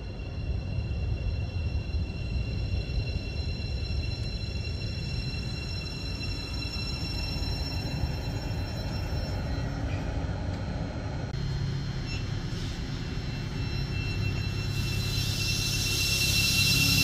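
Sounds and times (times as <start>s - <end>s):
train rumble: 0.0s - 17.0s
high electrical whines: 11.4s - 17.0s
hiss: 14.6s - 17.0s.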